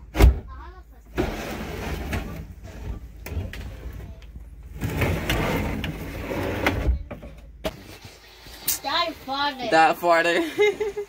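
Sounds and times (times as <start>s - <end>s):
wood scraping on wood: 4.7s - 7.0s.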